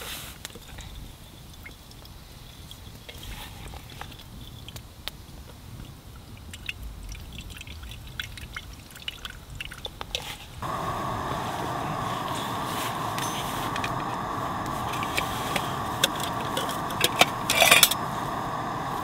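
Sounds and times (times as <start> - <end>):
low steady rumble: 10.6 - 19.0.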